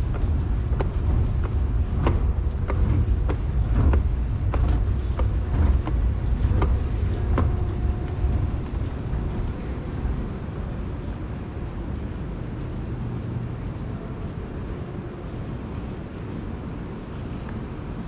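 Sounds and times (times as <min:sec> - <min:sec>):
wheels clacking on track: 0:00.0 - 0:11.2
faint steady whine: 0:00.0 - 0:18.0
streetcar rumble: 0:00.0 - 0:18.0.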